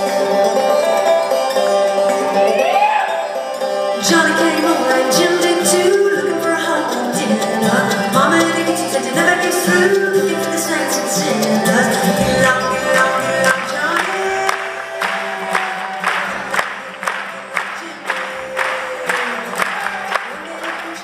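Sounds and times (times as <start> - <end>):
banjo picking: 0.0 - 21.0
guitar: 0.0 - 21.0
upright bass: 3.7 - 21.0
woman singing: 4.0 - 15.6.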